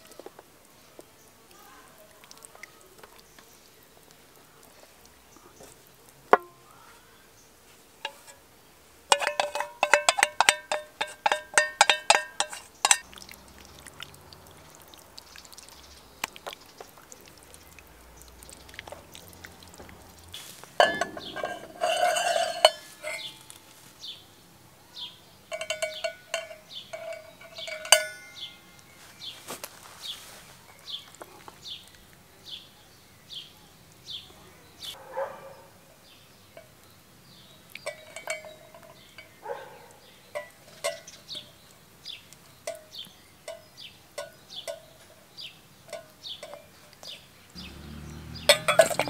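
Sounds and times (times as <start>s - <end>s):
enamel plate clinking: 9.1s - 13.0s, 20.7s - 23.7s, 25.5s - 28.8s, 37.8s - 39.6s, 47.6s - 49.0s.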